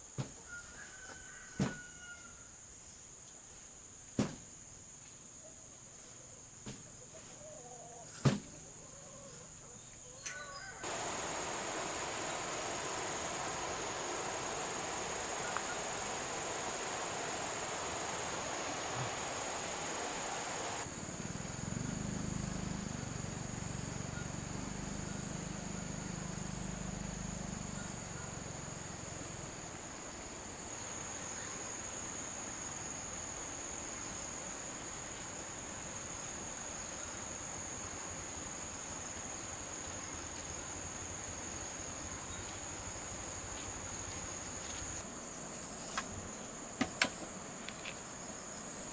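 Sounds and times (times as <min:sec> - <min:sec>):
insects droning: 0:00.0 - 0:48.9
rushing hiss: 0:10.8 - 0:20.9.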